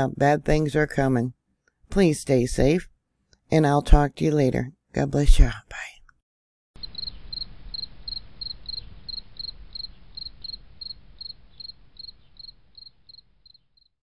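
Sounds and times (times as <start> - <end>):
faint low rumble: 6.8 - 13.5
cricket chirping: 6.8 - 13.9.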